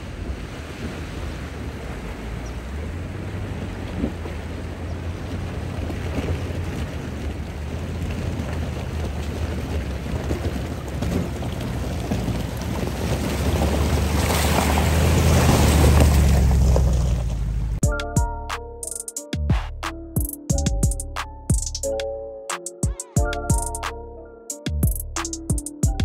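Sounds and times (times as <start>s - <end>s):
tyres splashing through water: 0.0s - 17.5s
car engine running low: 1.5s - 17.9s.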